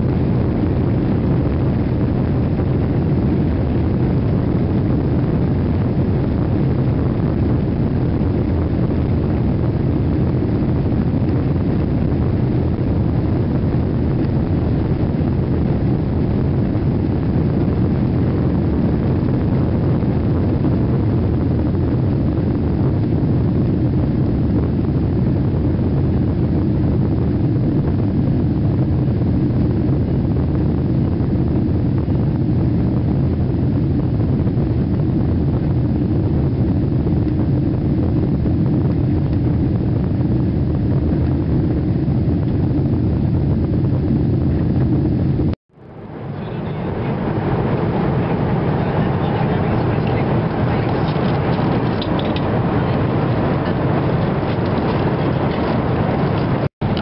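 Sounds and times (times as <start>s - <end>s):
cabin noise in flight: 0.0s - 57.0s
jet engines at takeoff power: 0.0s - 57.0s.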